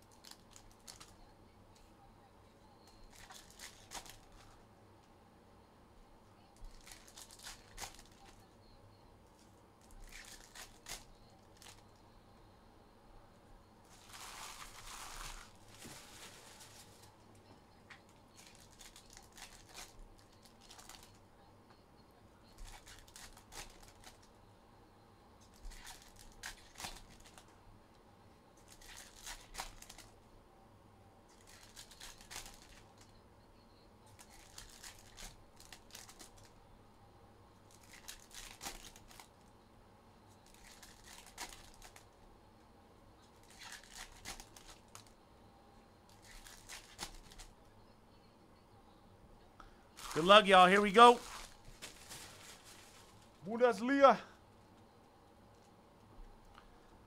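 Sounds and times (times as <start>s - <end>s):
card wrappers tearing and crinkling: 3.1s - 4.4s, 10.0s - 11.8s, 13.9s - 17.0s, 18.4s - 21.1s, 22.6s - 24.3s, 25.5s - 27.4s, 28.6s - 30.1s, 31.3s - 33.0s, 34.2s - 36.5s, 37.7s - 39.3s, 40.4s - 42.0s, 43.4s - 45.1s, 46.1s - 47.5s, 50.0s - 54.1s.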